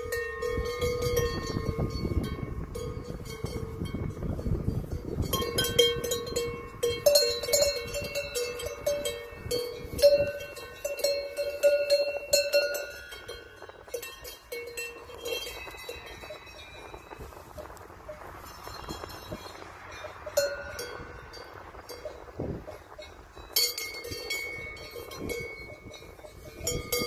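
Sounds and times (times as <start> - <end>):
cowbells clanking: 0.0 - 27.0.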